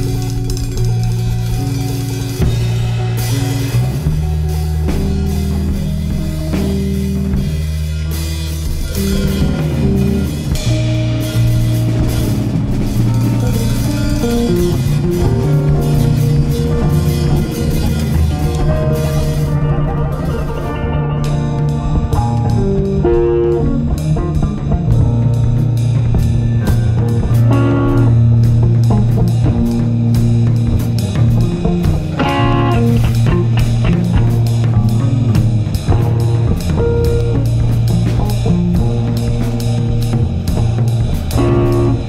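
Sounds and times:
rock band music: 0.0 - 42.0.

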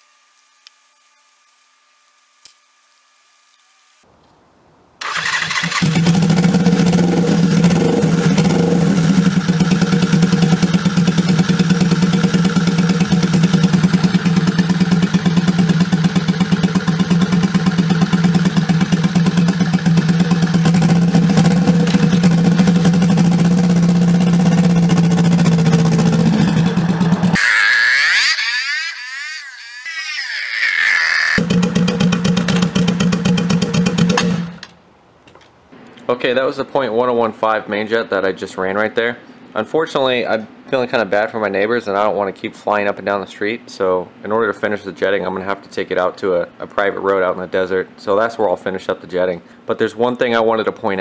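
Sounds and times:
motorcycle engine running: 5.8 - 27.4, 31.4 - 34.6.

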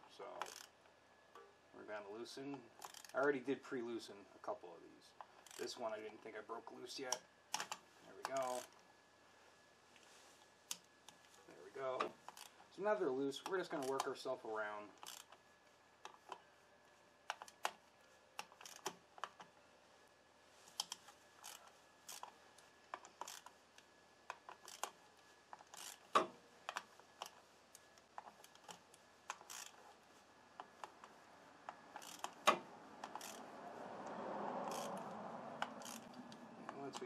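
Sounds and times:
ratchet clicking: 0.4 - 0.7, 2.8 - 3.3, 5.3 - 5.8, 7.1 - 8.8, 12.2 - 12.6, 15.0 - 15.4, 18.4 - 19.4, 20.8 - 22.3, 23.0 - 23.6, 24.3 - 27.4, 28.2 - 29.8, 31.7 - 33.5, 34.6 - 37.0.

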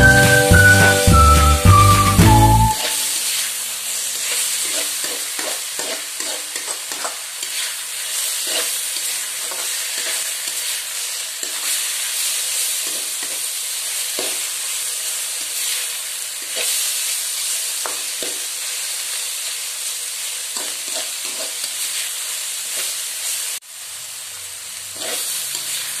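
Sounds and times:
food sizzling in a wok: 0.0 - 26.0
metal spatula scraping a pan: 4.2 - 10.7, 20.5 - 21.9, 24.9 - 26.0.

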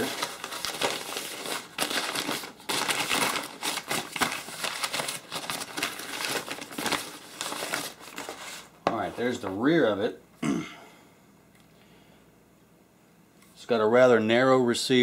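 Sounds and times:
paper wrapping crinkling: 0.0 - 8.8.

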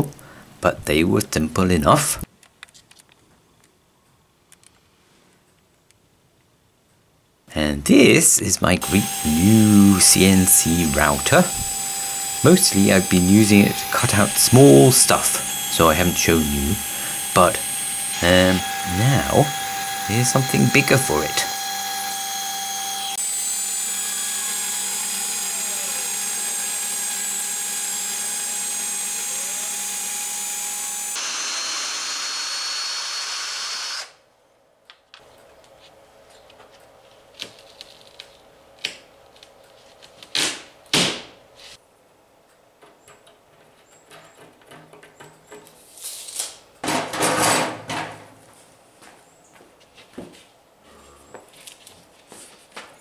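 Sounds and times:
router spindle cutting: 8.8 - 34.2.

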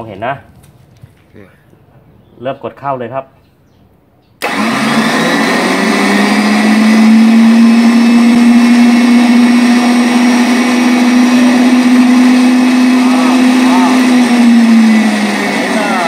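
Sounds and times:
electric winch whining: 4.4 - 16.0.

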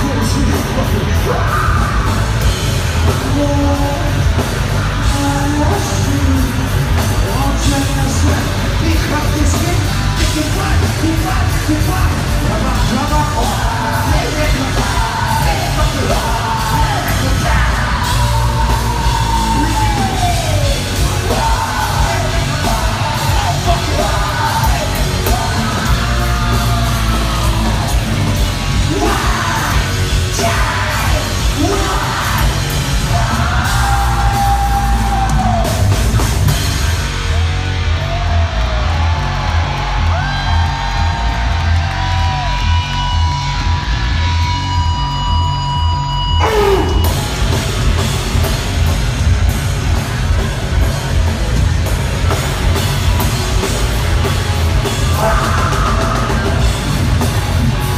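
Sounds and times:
person singing and yelling: 0.0 - 4.4, 5.0 - 36.0, 46.4 - 47.2, 54.8 - 57.9
heavy rock band playing: 0.0 - 57.9.

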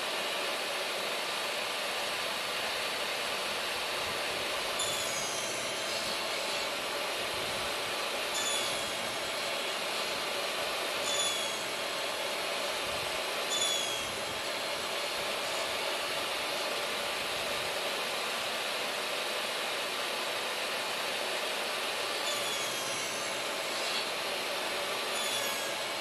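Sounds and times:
table saw running: 0.0 - 26.0
high squeals: 4.8 - 6.6, 8.3 - 9.0, 11.0 - 11.8, 13.5 - 14.2, 22.2 - 24.0, 25.1 - 25.8.

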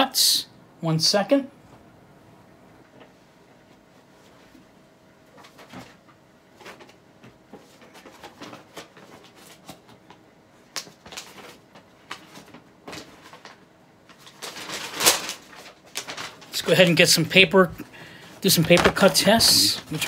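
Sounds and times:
objects being handled: 17.7 - 20.0.

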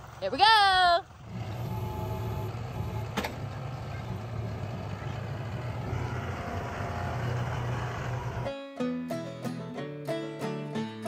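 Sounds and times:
tractor diesel engine running: 0.0 - 8.5.

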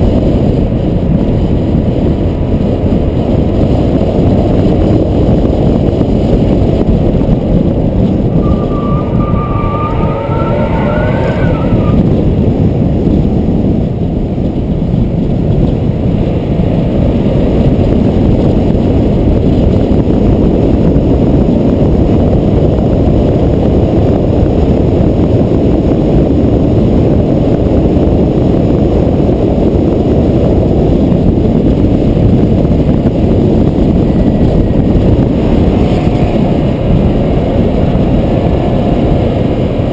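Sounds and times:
tyre and engine noise: 0.0 - 39.9
wind buffeting microphone: 0.0 - 39.9
thin rising squeal: 8.2 - 12.4.

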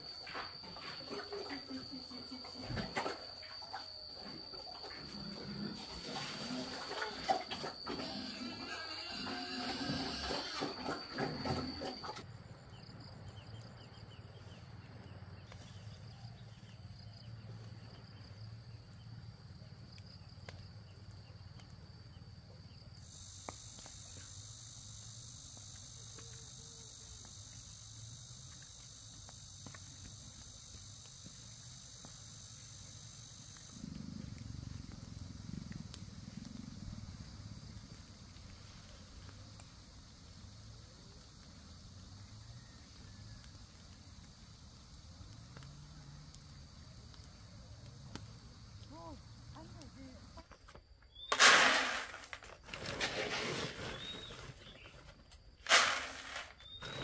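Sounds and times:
high-pitched insect buzz: 0.0 - 12.2, 22.1 - 52.4.

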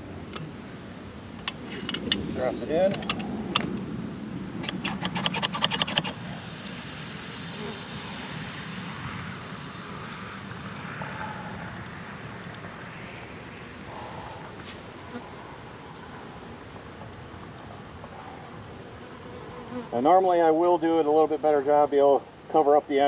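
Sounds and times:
sharp crackling clicks: 4.6 - 6.2.

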